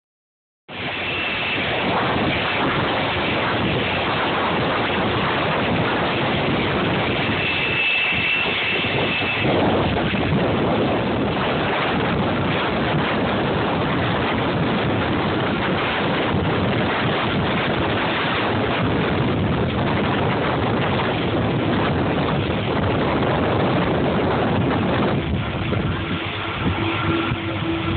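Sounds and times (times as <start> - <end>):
thin high whine: 0.7 - 12.7, 23.0 - 27.9
jet engines running: 0.7 - 27.9
wind on microphone: 0.7 - 27.9.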